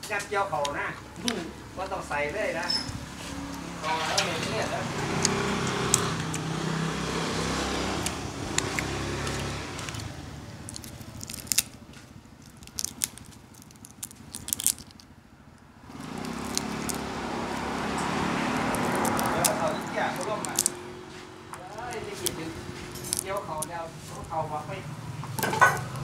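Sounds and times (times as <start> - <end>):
person chewing prawn: 5.1 - 6.6, 7.4 - 15.1, 15.9 - 23.7
shell crunching: 8.0 - 20.8, 21.6 - 24.3.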